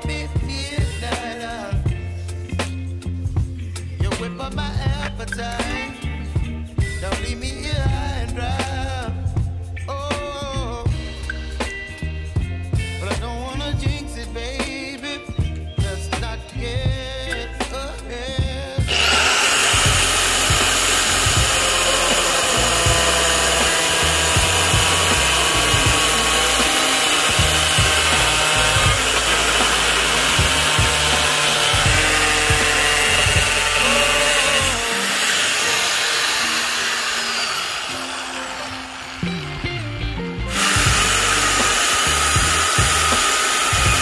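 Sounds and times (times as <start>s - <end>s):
angle grinder cutting plastic sheet: 18.9s - 39.8s, 40.5s - 44.0s.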